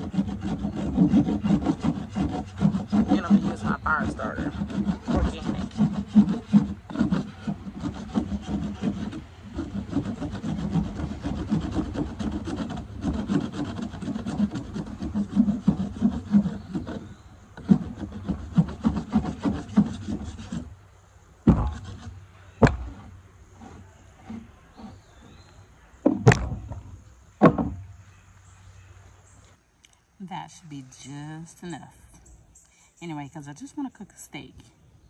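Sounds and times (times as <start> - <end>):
knife scraping wood: 0.0 - 20.7, 21.5 - 26.9
sharp knocks: 5.0 - 5.7, 21.4 - 21.9, 22.6 - 23.1, 26.0 - 27.8.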